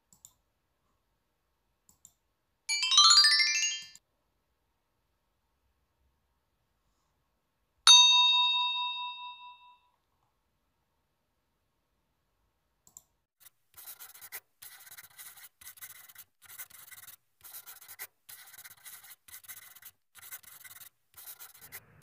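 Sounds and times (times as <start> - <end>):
pen scratching on board: 13.4 - 22.0.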